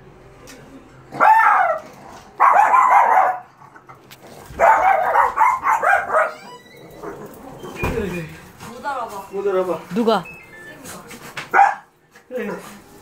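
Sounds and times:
dog barking and yelping: 0:01.1 - 0:03.6, 0:04.5 - 0:07.4, 0:11.5 - 0:11.9.

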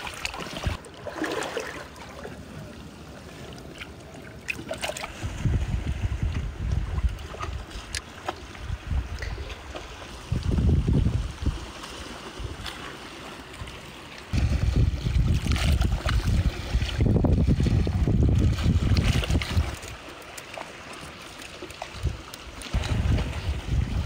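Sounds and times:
wind buffeting microphone: 0:05.1 - 0:08.0, 0:08.6 - 0:11.8, 0:14.3 - 0:19.8, 0:22.0 - 0:24.0.

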